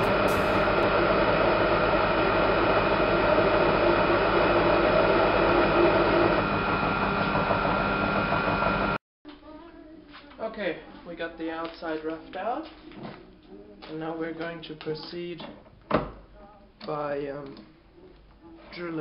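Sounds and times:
lathe motor hum: 0:00.0 - 0:09.0
metal cutting noise: 0:00.0 - 0:09.0.

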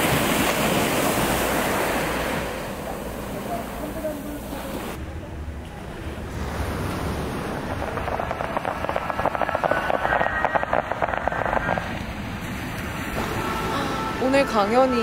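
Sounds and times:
low rumble: 0:05.0 - 0:15.0
firework crackling with rapid pops: 0:07.5 - 0:12.5.

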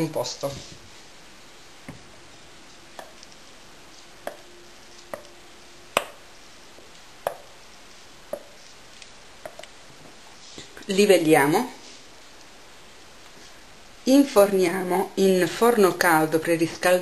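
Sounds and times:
spatula tapping bowl and tin: 0:03.0 - 0:03.3, 0:04.2 - 0:04.5, 0:05.1 - 0:05.4, 0:07.2 - 0:07.6, 0:08.3 - 0:08.6.

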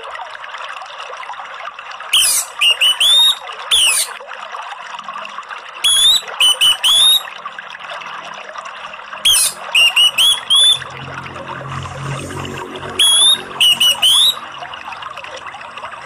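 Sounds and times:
flowing water rushing: 0:00.0 - 0:16.0
thrush singing whistled notes: 0:02.2 - 0:04.1, 0:05.9 - 0:07.3, 0:09.3 - 0:11.2, 0:12.8 - 0:14.6.

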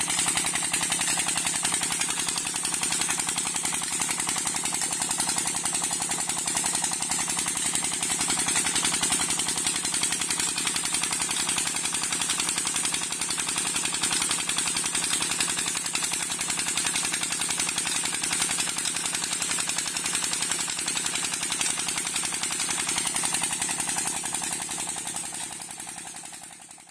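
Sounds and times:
water pouring from pipe: 0:00.0 - 0:12.8.

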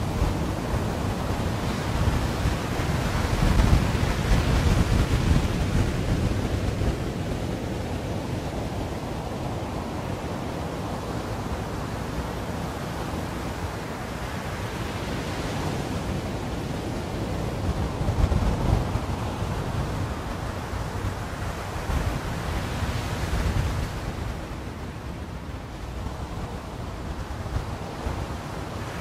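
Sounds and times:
wind buffeting microphone: 0:00.0 - 0:13.5, 0:15.2 - 0:29.0
sea surf breaking on beach: 0:00.0 - 0:29.0.

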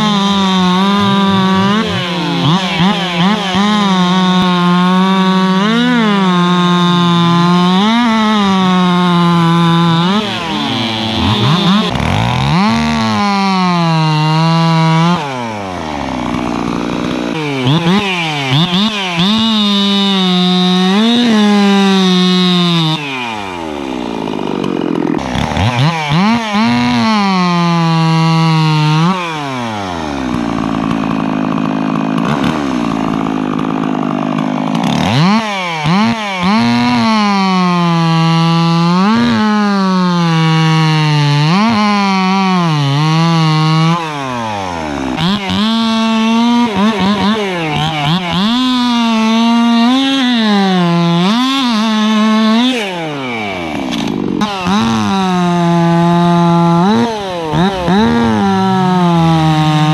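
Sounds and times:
chainsaws cutting timber: 0:00.0 - 0:59.9.

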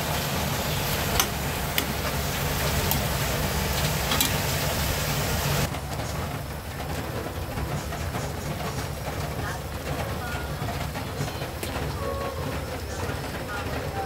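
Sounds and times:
chicken sizzling in hot oil: 0:00.0 - 0:05.7
sauce bubbling: 0:00.0 - 0:05.7.

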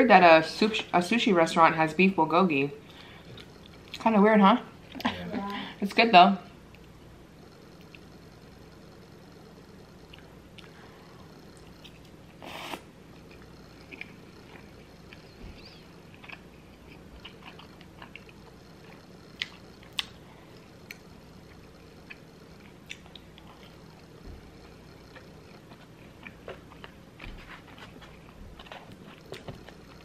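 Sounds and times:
person chewing and biting food: 0:11.6 - 0:15.4, 0:16.0 - 0:30.0.

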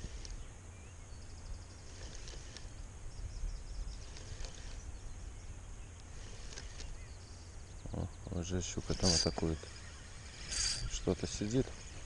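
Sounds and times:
small clicks: 0:00.0 - 0:00.4, 0:01.8 - 0:02.8, 0:04.0 - 0:04.9, 0:05.9 - 0:07.0
faint bird chirps: 0:00.0 - 0:12.0
low steady rumble: 0:00.0 - 0:12.0.

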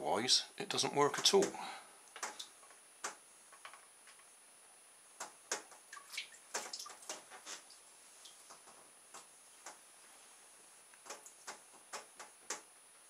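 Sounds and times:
water drips and small splashes: 0:01.1 - 0:03.8, 0:05.2 - 0:09.8, 0:11.0 - 0:12.7.

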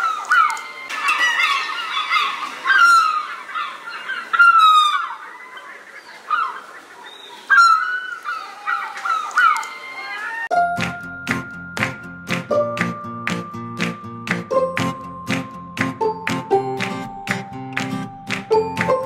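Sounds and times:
flock of birds calling: 0:00.0 - 0:10.5.

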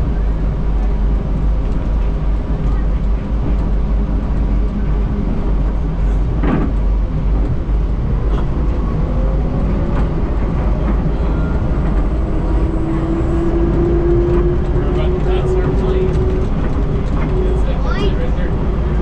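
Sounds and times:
train car rumbling: 0:00.0 - 0:19.0
rising whine: 0:08.1 - 0:19.0.

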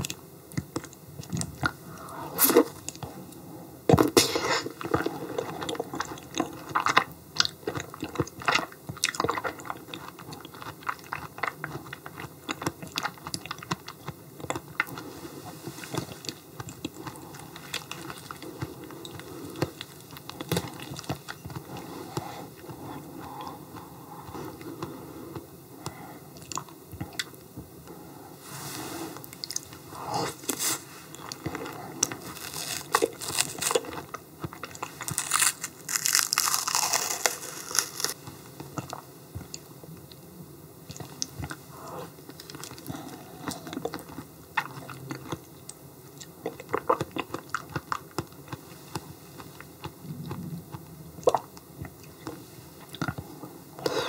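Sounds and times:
chewing and biting: 0:31.2 - 0:38.2.

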